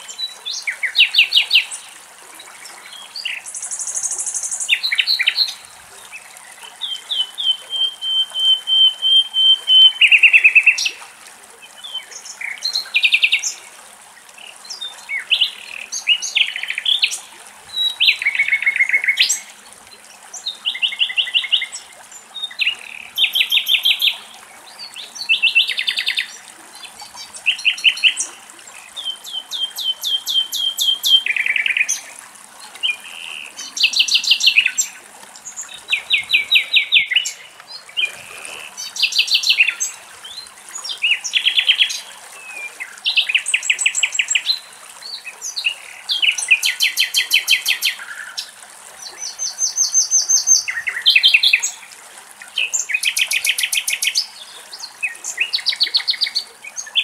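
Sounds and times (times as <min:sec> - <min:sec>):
nightingale singing: 0:06.8 - 0:10.9, 0:29.0 - 0:32.0.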